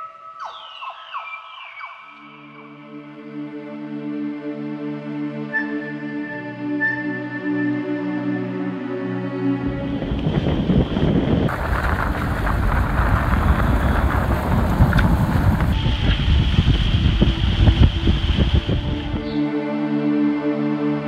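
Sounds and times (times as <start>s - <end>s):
wind buffeting microphone: 9.5s - 19.5s
water rushing past hull: 9.8s - 19.3s.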